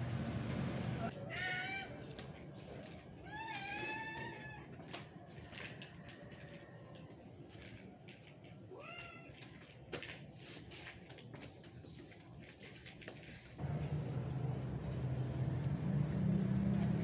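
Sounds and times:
cats eating from plastic bowls: 2.0 - 10.4.

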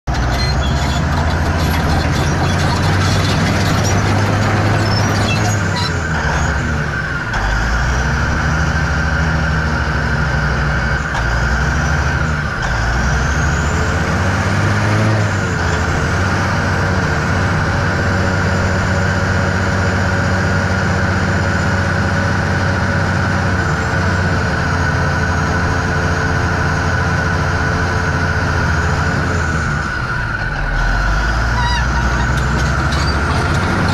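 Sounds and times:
bulldozer diesel engine running: 0.0 - 33.9
high-pitched squeals: 0.1 - 6.7, 30.8 - 33.9.

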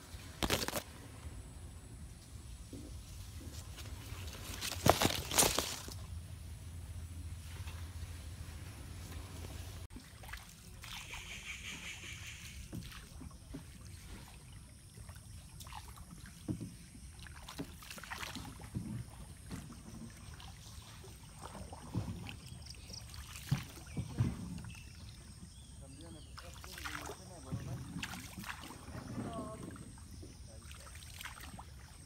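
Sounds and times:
paddle dipping and splashing: 2.6 - 6.2, 7.4 - 32.0
water dripping and lapping: 9.0 - 32.0.

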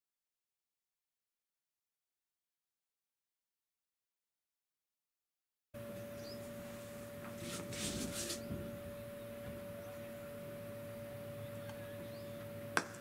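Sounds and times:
faint open-ground noise: 5.8 - 13.0
steady high hum: 5.8 - 13.0
cricket bat striking ball: 12.8 - 13.0.

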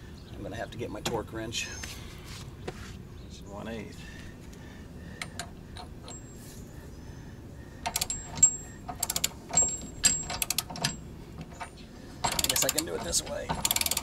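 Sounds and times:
ratchet wrench clicking: 7.8 - 11.6, 12.2 - 14.0.

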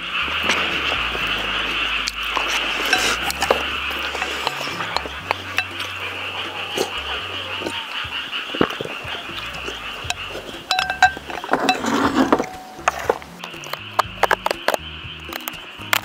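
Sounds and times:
eating sounds: 0.0 - 16.0
frogs calling: 0.0 - 16.0
chopsticks clinking on glass bowl: 10.1 - 13.7.

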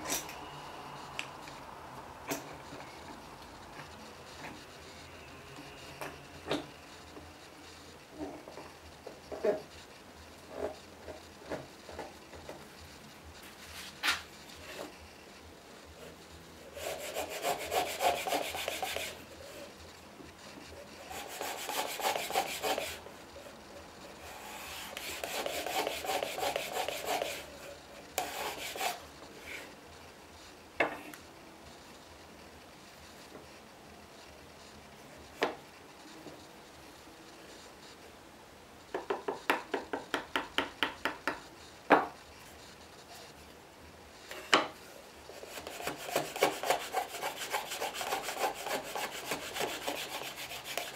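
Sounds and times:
router plane scraping wood: 16.8 - 19.2, 21.2 - 23.0, 24.3 - 27.5, 45.4 - 50.9.

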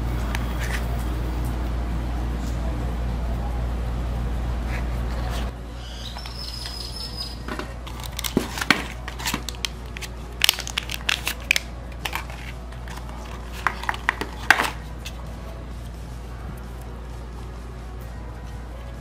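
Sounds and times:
cardboard being handled: 7.8 - 15.2
plastic packaging crinkling: 7.8 - 15.2.

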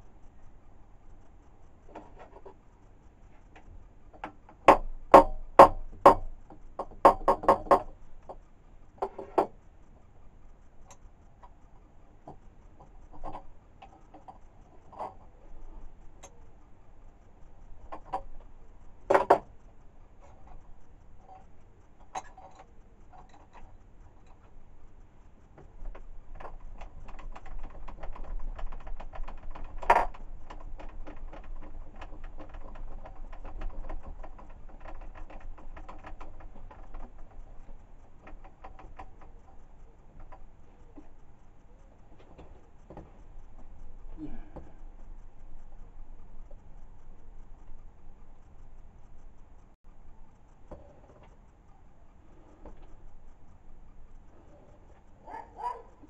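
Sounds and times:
sharp metal knocks and clicks: 3.6 - 9.6, 12.2 - 16.5, 17.1 - 24.6, 25.2 - 49.8.

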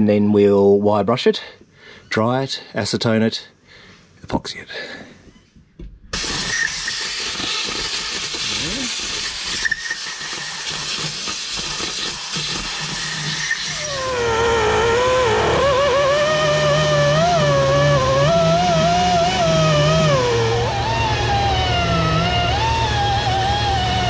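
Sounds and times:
hiss with clatter: 6.1 - 14.0
air-powered wire wheel whining: 6.2 - 24.0.

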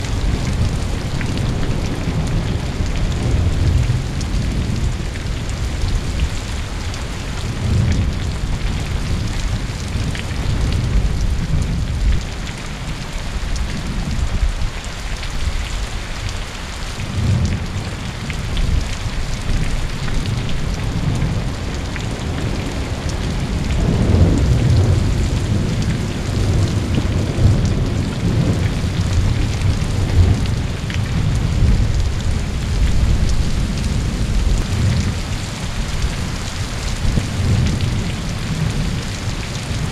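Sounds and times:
heavy rain falling: 0.0 - 39.9
thunder rumbling: 19.5 - 39.9.

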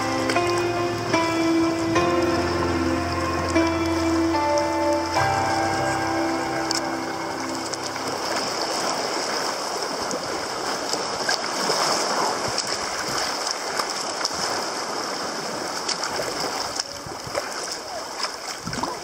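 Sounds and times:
sea water rushing and sloshing: 0.0 - 19.0
small water splashes: 7.6 - 19.0.

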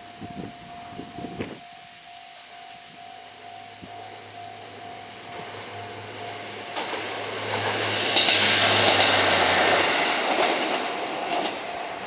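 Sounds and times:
crossing warning bell ringing: 0.0 - 12.0
diesel railcar passing: 0.0 - 12.0
wheel clacks over rail joints: 6.6 - 12.0.

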